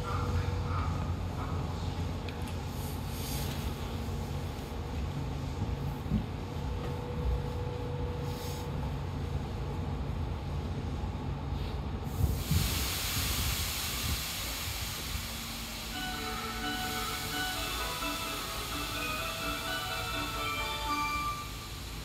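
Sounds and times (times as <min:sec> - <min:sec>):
subway train rumble: 0:00.0 - 0:22.0
loud hiss of air: 0:02.7 - 0:03.9, 0:11.5 - 0:22.0.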